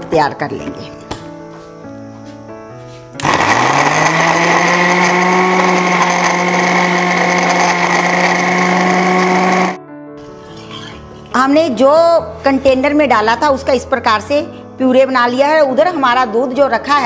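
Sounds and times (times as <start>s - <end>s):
faint background music: 0.0s - 7.4s, 9.9s - 17.0s
mixer grinder motor whine: 3.2s - 9.8s.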